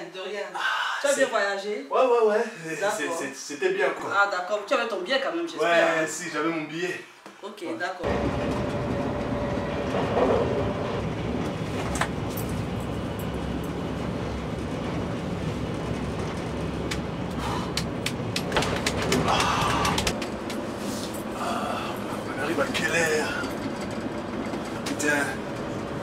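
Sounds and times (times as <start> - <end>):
train rumbling: 8.0 - 26.0.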